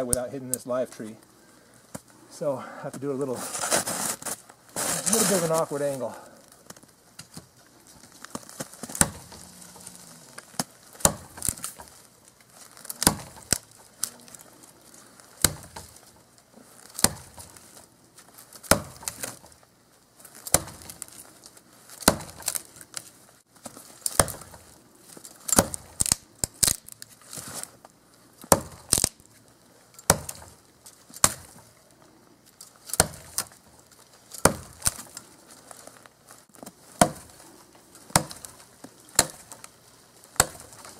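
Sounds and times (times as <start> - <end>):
tomahawk chopping tree: 8.3 - 12.1, 12.7 - 14.2, 15.3 - 16.2, 16.8 - 17.8, 18.6 - 19.6, 20.3 - 21.2, 22.0 - 22.8, 23.7 - 24.8, 25.4 - 27.7, 28.4 - 29.3, 30.0 - 30.6, 31.2 - 31.7, 32.8 - 33.6, 34.3 - 35.2, 36.6 - 37.4, 38.0 - 40.9.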